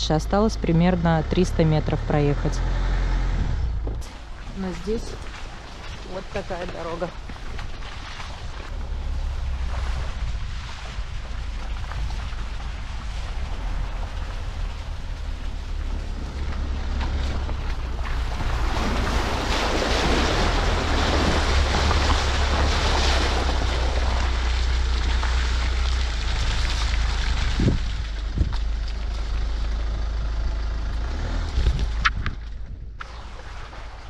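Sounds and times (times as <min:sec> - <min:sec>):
wind rumble on microphone: 0:02.5 - 0:34.0.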